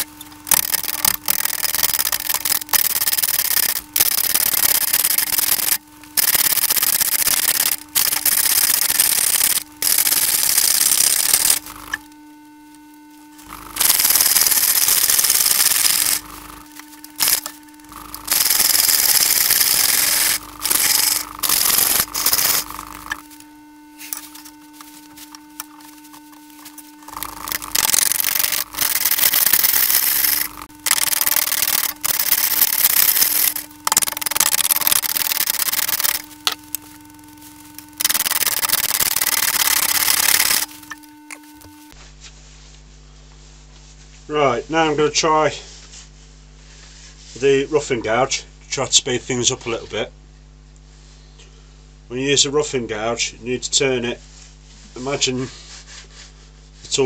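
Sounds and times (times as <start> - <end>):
lathe tool cutting wood: 0.0 - 12.2, 13.4 - 37.0
lathe motor humming: 0.0 - 42.0.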